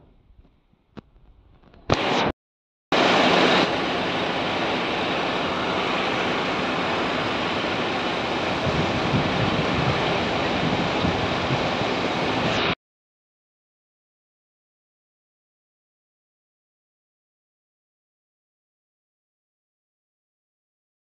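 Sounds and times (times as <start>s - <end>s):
diesel engine running: 3.0s - 12.6s.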